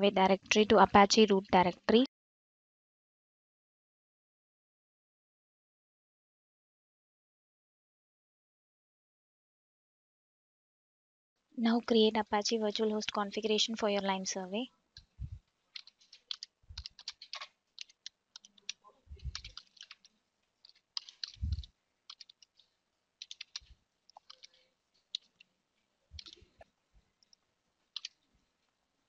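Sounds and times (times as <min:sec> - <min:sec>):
keyboard typing: 0:12.2 - 0:14.1, 0:15.7 - 0:25.5, 0:26.2 - 0:26.6, 0:27.2 - 0:28.2.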